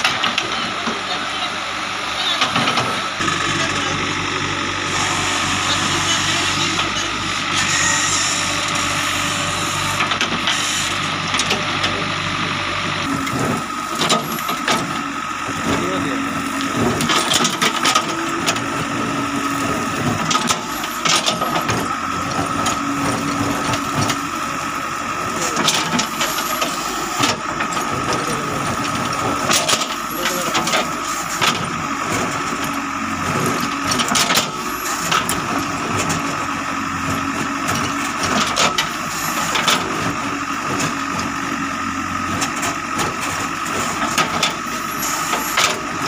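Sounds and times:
diesel engine running with whine: 0:00.0 - 0:46.0.

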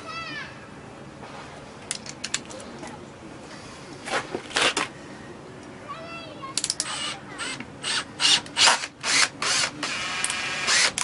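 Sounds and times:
cordless drill driving screws: 0:06.9 - 0:11.0.

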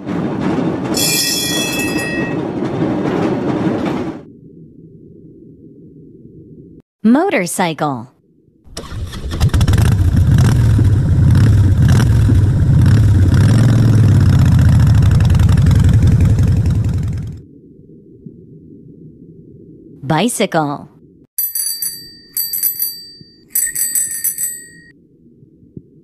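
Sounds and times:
motorcycle engine rumble: 0:08.8 - 0:17.4.

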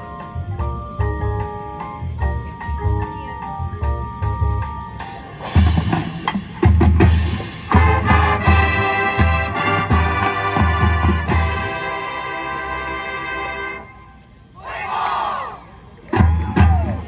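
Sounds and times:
bass drums and percussion: 0:00.0 - 0:12.6, 0:16.0 - 0:17.0
sustained wind chords: 0:07.3 - 0:16.0.

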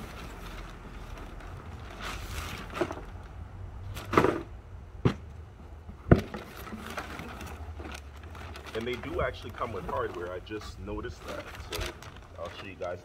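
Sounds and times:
scraping rustle: 0:00.0 - 0:03.3, 0:06.3 - 0:13.0.

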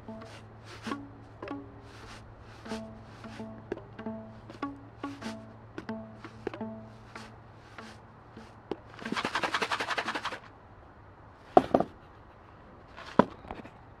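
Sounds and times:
rubber bands rattling: 0:07.8 - 0:10.4.

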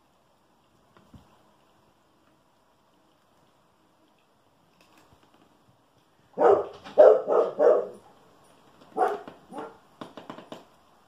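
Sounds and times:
dog barking: 0:06.4 - 0:08.0, 0:09.0 - 0:09.8.

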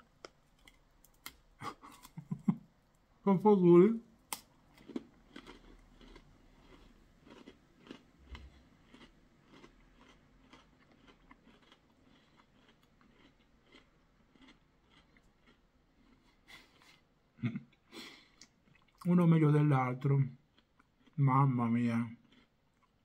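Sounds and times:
person chewing crunchy snack: 0:04.3 - 0:17.0, 0:20.4 - 0:21.2, 0:22.2 - 0:23.0.

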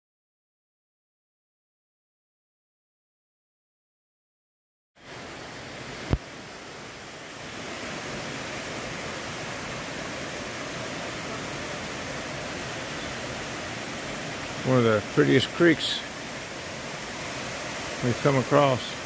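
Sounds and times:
creek water rushing: 0:05.0 - 0:19.0.

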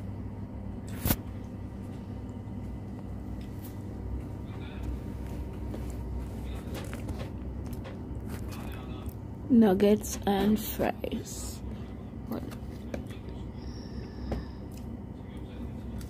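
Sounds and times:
faint indistinct voices: 0:11.6 - 0:16.0.

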